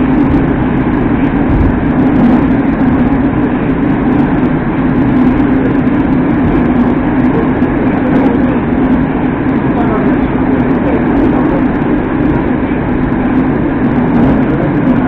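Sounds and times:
low steady hum: 0.0 - 15.0
metro train rumble: 0.0 - 15.0.

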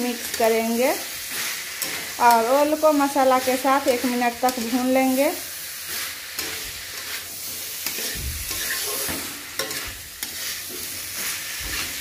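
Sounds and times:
food sizzling in a pan: 0.0 - 12.0
spatula scraping and knocking pan: 1.2 - 5.2, 5.8 - 12.0.

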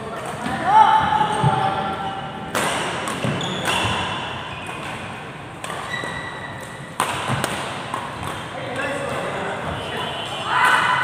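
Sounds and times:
rackets hitting shuttlecock: 2.4 - 9.7.

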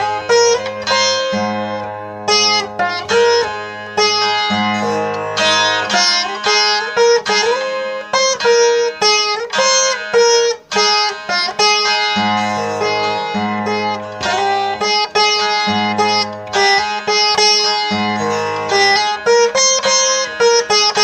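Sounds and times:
plucked veena melody: 0.0 - 21.0.

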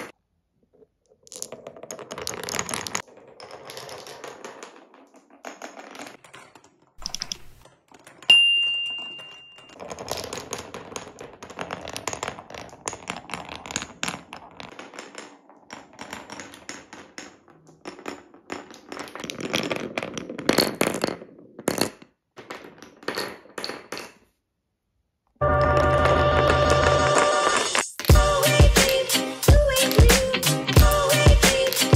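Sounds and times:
glass marbles rolling on wood: 0.0 - 24.3, 25.4 - 29.0, 29.7 - 31.9
marbles clicking together: 4.8 - 9.8, 29.7 - 31.9.

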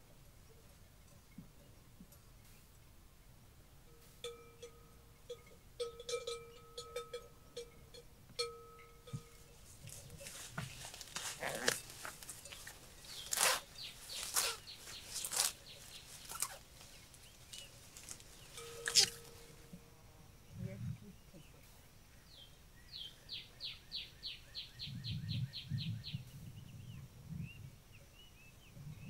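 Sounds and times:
small bell clanking: 3.9 - 10.6, 18.5 - 19.6
rustling and crunching: 9.1 - 19.8.

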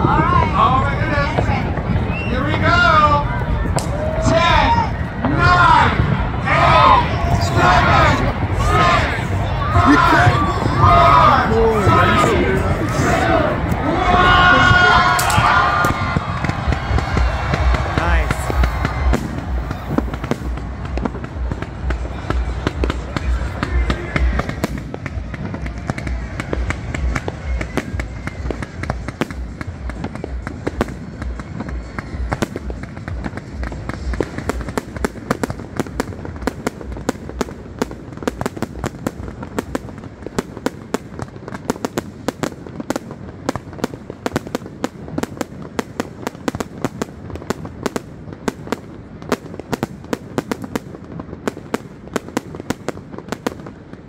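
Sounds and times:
fireworks crackling pops: 0.0 - 6.4, 7.2 - 54.0
heavy low rumble: 0.0 - 41.4.

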